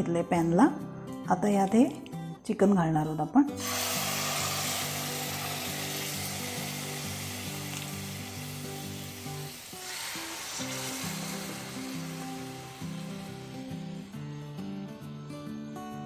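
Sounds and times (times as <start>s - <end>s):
background music: 0.0s - 16.0s
chicken sizzling in hot oil: 3.6s - 14.2s.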